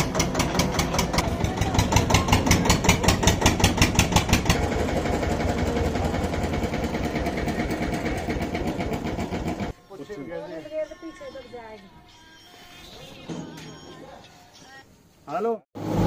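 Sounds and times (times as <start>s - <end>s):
diesel tractor engine running: 0.0s - 9.7s.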